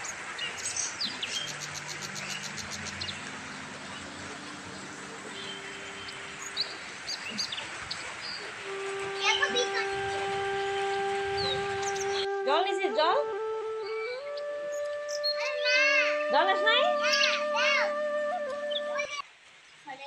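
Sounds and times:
birds chirping and twittering: 0.0 - 19.9
background hiss: 0.0 - 20.0.

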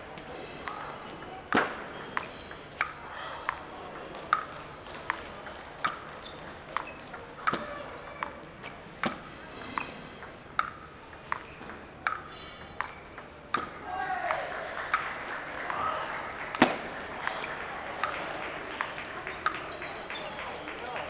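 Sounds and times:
table tennis ball clicking: 2.0 - 8.4, 9.0 - 13.8.

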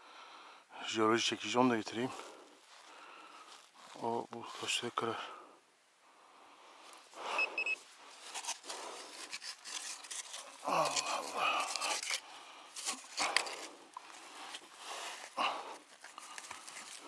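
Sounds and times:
scraping soil and stones: 8.0 - 17.0.

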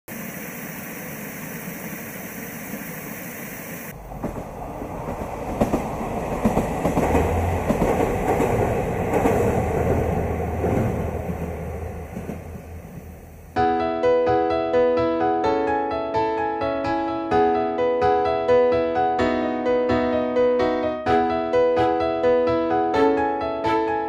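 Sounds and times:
train rumbling over bridge: 1.0 - 13.6.

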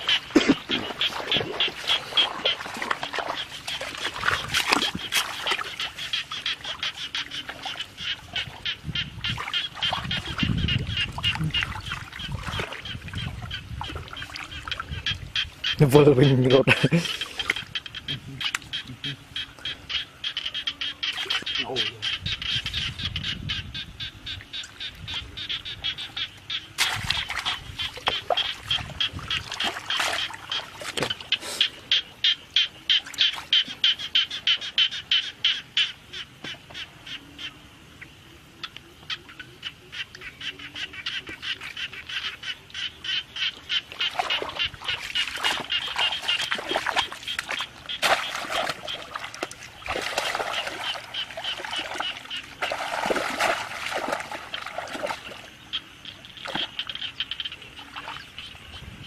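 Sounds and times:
shallow water sloshing: 0.0 - 15.8, 26.8 - 31.4, 43.4 - 57.0
chorus of rhythmic animal calls: 0.0 - 59.0.

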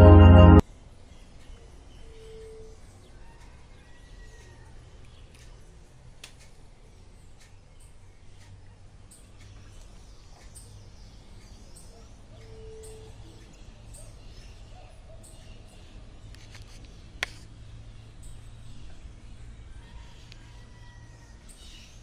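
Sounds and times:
low hum: 0.0 - 0.6.

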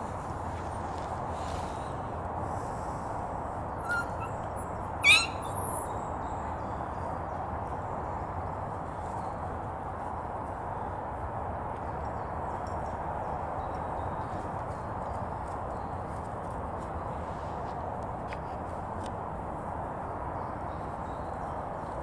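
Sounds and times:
outdoor background noise: 0.0 - 22.0
faint squeak: 3.8 - 4.4
puppy yelping: 3.8 - 5.8.

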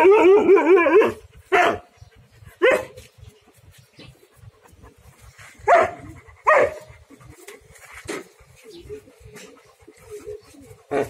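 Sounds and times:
dogs barking: 0.0 - 3.1, 4.1 - 8.3.

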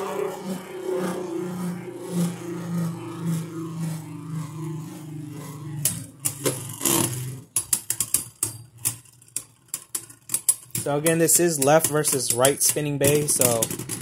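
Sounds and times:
spinning tops whirring: 0.0 - 14.0
spinning tops clacking: 5.8 - 14.0.

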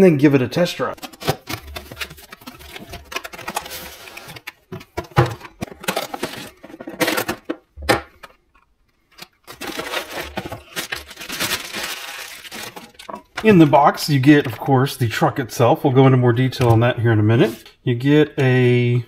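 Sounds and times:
cardboard box packaging rustling: 0.8 - 8.5, 9.2 - 14.6.

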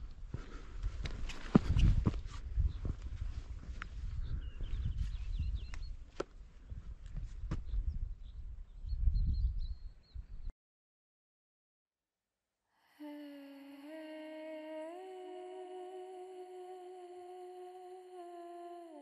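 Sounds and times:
wordless humming tone music: 13.0 - 19.0.

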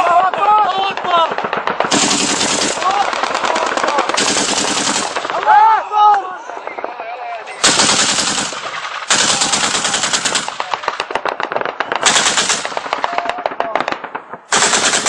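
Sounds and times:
automatic gunfire bursts: 0.9 - 5.4, 7.6 - 15.0.

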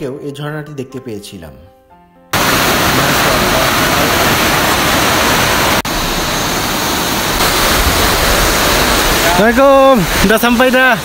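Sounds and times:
waterfall rushing: 2.4 - 11.0.

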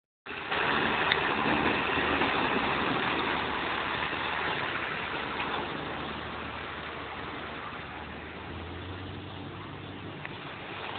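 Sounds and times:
harvester and tractor machine noise: 0.3 - 10.9.

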